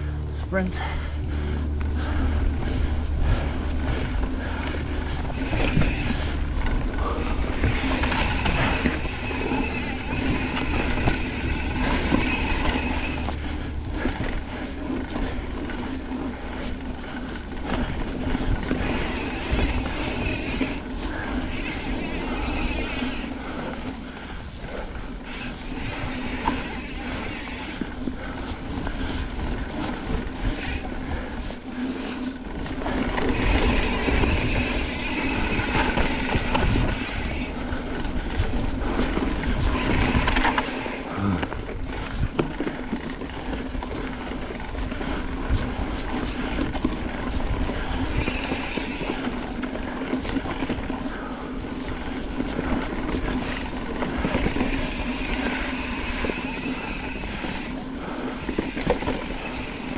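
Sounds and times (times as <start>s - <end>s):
low rumble: 0.0s - 31.4s
bike rattling and knocking: 0.0s - 59.9s
bike tyres rolling on dirt: 0.0s - 59.9s.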